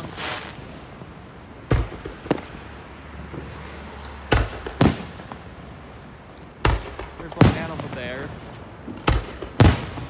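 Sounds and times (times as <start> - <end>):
fireworks shells bursting: 0.0 - 0.8.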